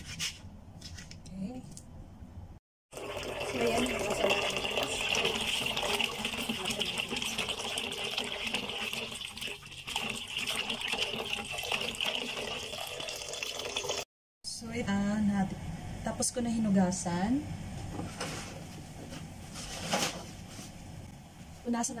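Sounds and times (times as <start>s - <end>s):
tap water running into bowl: 2.9s - 14.0s.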